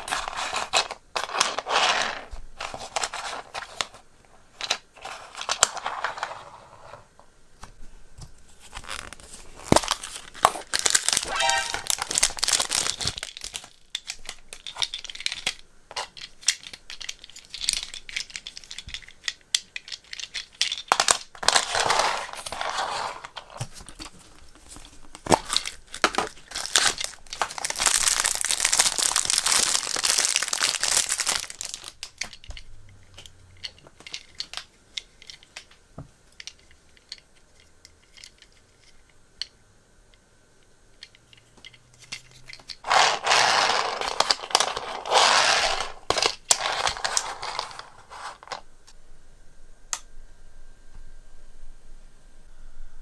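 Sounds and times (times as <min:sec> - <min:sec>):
plastic wrapper crinkling and tearing: 0:08.6 - 0:14.4, 0:24.0 - 0:32.3.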